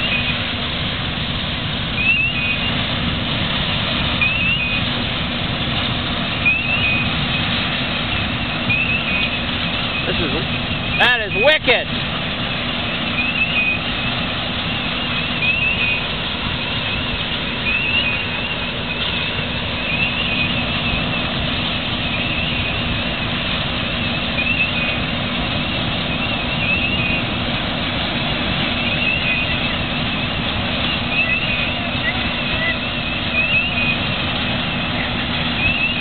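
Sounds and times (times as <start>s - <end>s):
engine humming: 0.0s - 36.0s
fire hoses spraying water: 0.0s - 36.0s
wavering high-pitched tone: 4.2s - 4.8s, 14.9s - 21.2s.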